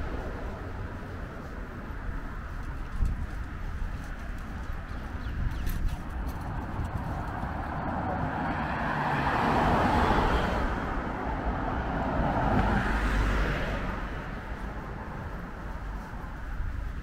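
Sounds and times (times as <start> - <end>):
car driving past: 7.3 - 14.4.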